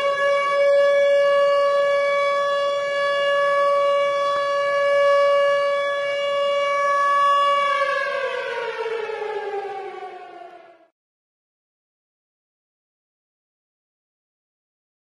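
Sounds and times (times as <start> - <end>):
tornado siren wailing: 0.0 - 10.9.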